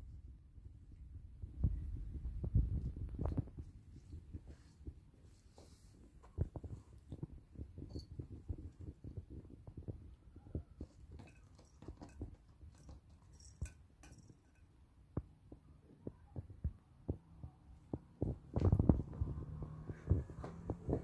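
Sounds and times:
fabric rustling: 2.7 - 9.6.

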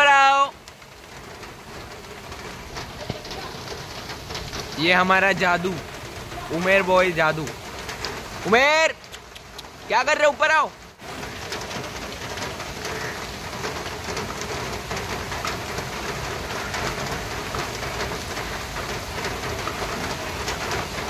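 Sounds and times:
heavy rain on a street: 0.0 - 21.0.

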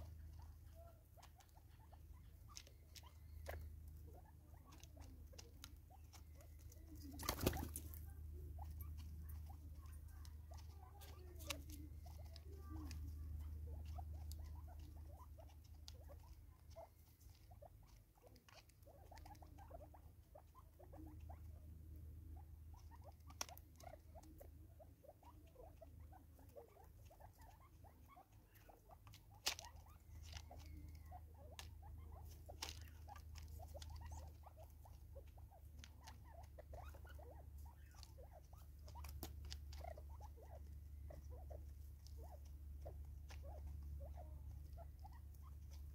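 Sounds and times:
birds pecking and scratching: 0.0 - 45.9
faint low hum: 0.0 - 45.9.

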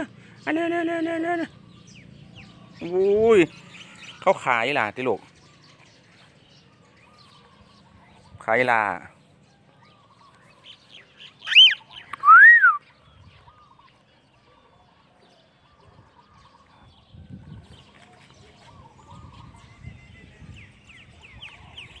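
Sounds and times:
bird chirping: 0.0 - 22.0
cockatiel whistled calls: 11.4 - 12.9.

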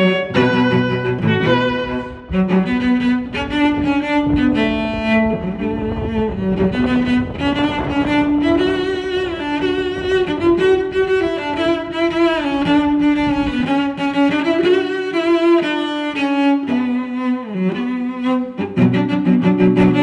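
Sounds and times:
bowed strings slow melody: 0.0 - 20.0
low rumble: 0.2 - 14.0.

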